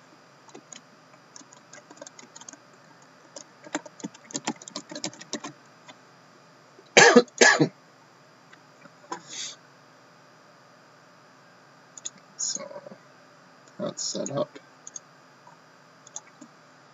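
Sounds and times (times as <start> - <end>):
laptop keyboard typing: 0.5 - 2.6, 3.2 - 5.6, 14.8 - 15.0, 16.0 - 16.4
person coughing: 7.0 - 7.7.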